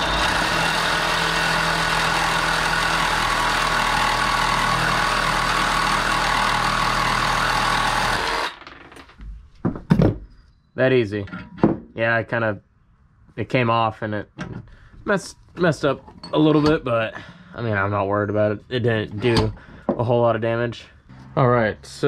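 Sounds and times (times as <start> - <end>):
reciprocating saw cutting metal: 0.0 - 8.6.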